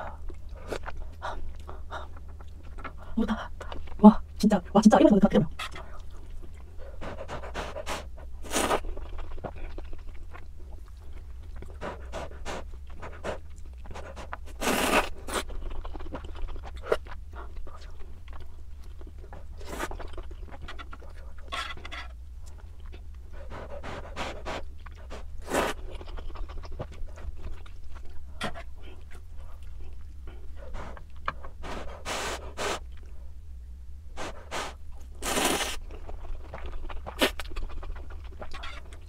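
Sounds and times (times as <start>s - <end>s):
wet chewing: 0.0s - 4.0s, 5.5s - 33.2s, 34.2s - 39.0s
steady low hum: 0.0s - 39.0s
noodles slurped: 34.2s - 35.8s.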